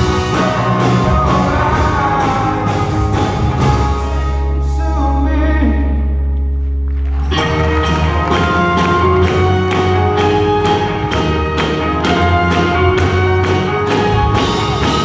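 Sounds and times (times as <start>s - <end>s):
person singing: 0.0s - 6.3s
live band playing: 0.0s - 15.0s.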